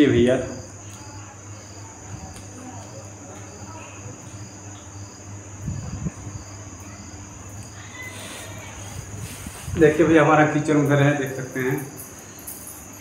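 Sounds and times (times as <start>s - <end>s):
crickets chirping: 0.0s - 13.0s.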